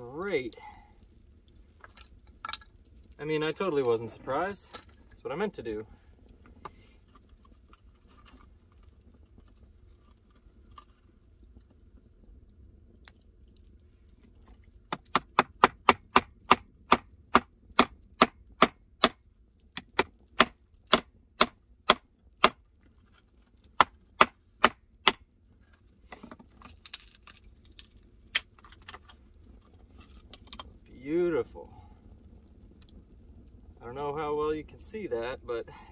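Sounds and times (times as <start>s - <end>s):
blade knocking into firewood: 14.9s - 19.2s, 19.8s - 22.6s.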